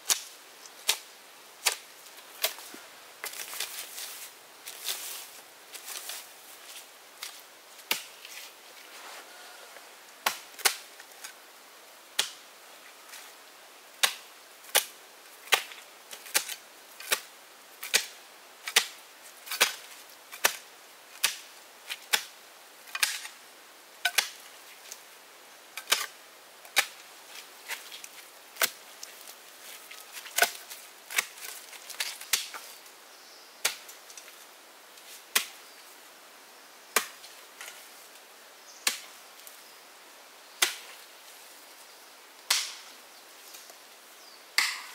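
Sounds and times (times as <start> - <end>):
wood chopping strikes: 21.2 - 21.4, 35.3 - 35.5, 37.0 - 37.2, 40.6 - 40.8, 42.5 - 42.8, 44.6 - 44.9.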